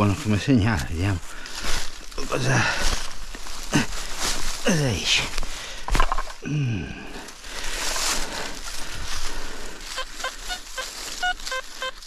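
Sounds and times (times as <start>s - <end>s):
digging in soil: 0.0s - 12.0s
metal detector short beeps: 11.2s - 12.0s.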